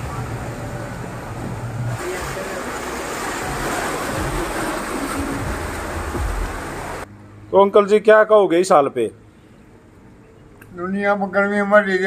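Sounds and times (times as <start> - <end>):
water splashing against wheels: 0.0 - 7.1
low engine hum: 0.0 - 7.5.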